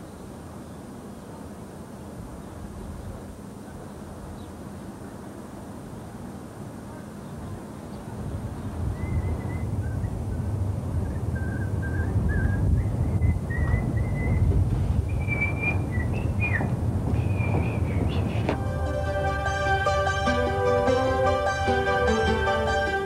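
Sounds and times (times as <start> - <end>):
steady low rumble: 8.1 - 21.8.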